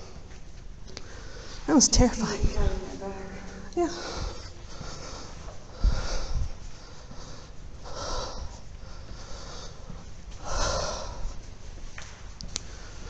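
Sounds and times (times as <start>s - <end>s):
person breathing noisily: 3.8s - 11.4s.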